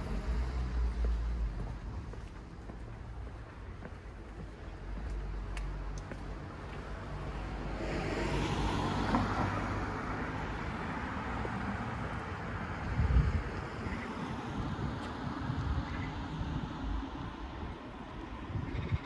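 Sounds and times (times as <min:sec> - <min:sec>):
car passing: 0:00.0 - 0:18.1.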